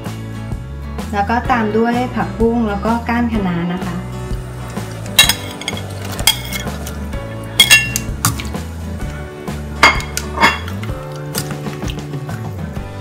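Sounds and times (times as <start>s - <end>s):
utensils clinking against steel pot: 4.6s - 8.6s, 9.8s - 11.8s.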